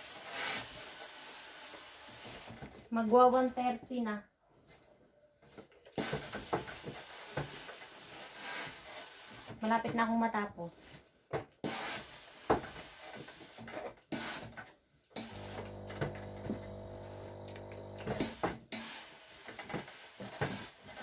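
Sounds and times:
steam pump buzzing hum: 15.2 - 18.5.

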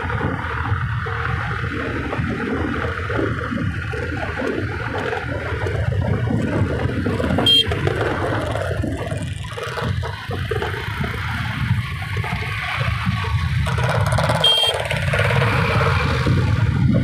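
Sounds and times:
scooter road noise: 0.0 - 17.0
wind buffeting microphone: 0.0 - 17.0
short horn beep: 7.4 - 7.7, 14.4 - 14.8.

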